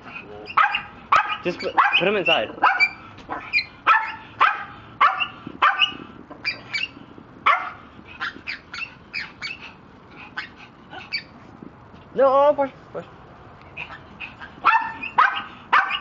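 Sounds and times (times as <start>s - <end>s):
dog barking: 0.5s - 6.9s, 7.5s - 9.6s, 14.6s - 16.0s.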